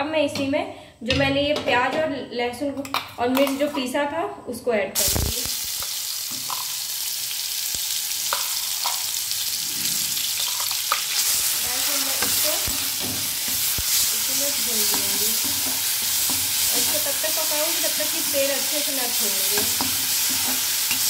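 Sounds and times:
paste sizzling in hot oil: 5.0s - 21.0s.

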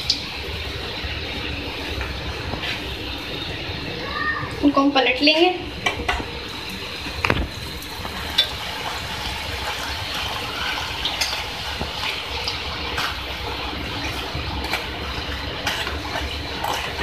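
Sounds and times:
oil sizzling while frying: 0.0s - 17.0s.

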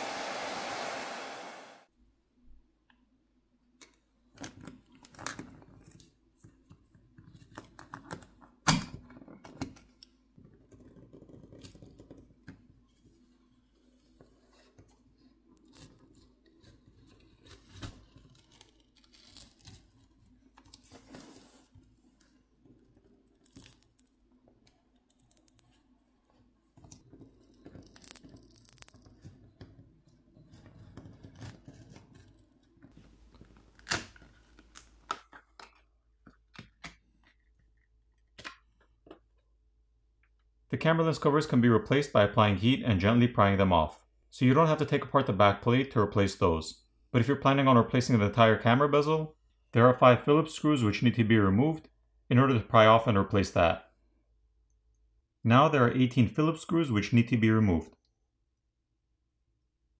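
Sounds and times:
adhesive peeling with crackling: 15.6s - 20.9s, 27.0s - 29.4s, 33.2s - 35.8s.

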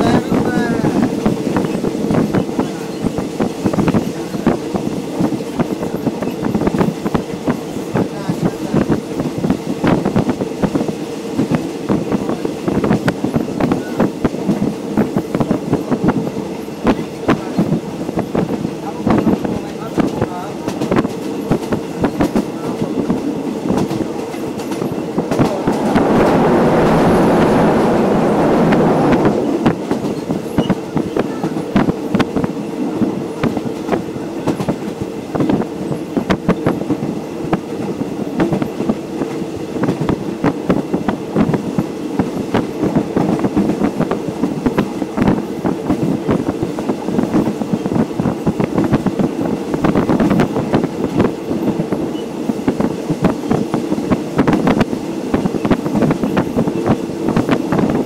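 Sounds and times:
train rumbling on track: 0.0s - 58.0s
loud rushing noise: 24.8s - 30.6s.

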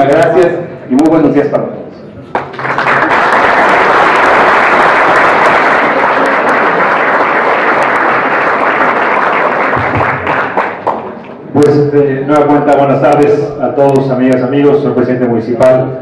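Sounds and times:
crowd applauding: 2.3s - 11.4s.

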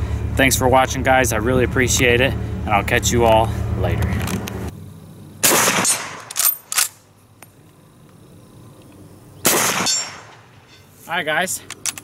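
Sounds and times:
rifle shot: 5.4s - 7.0s, 9.4s - 10.5s.

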